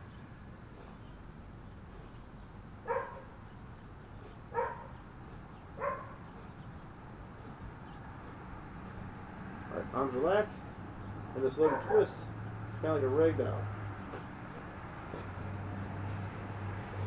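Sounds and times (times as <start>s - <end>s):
low background hum: 0.0s - 17.0s
dog barking: 2.8s - 3.3s, 4.5s - 5.0s, 5.8s - 6.2s, 11.6s - 12.2s.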